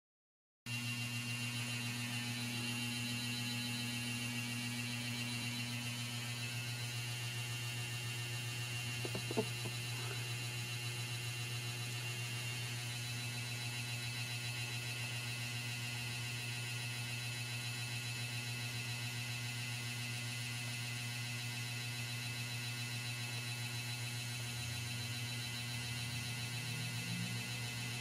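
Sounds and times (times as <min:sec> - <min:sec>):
faint high whines: 0:00.8 - 0:07.3.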